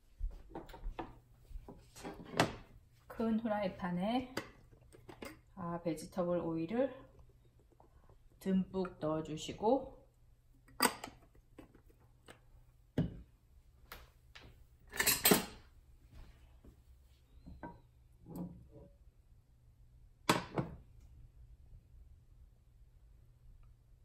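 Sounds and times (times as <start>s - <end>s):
kitchen utensils clattering: 14.9s - 15.6s.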